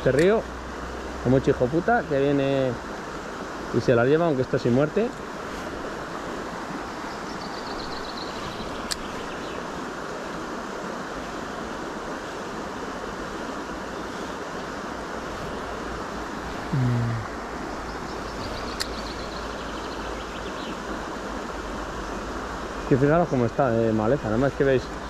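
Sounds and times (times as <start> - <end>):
fast-flowing river rushing: 0.0 - 25.0
sharp clicks: 8.8 - 9.1, 18.6 - 19.1.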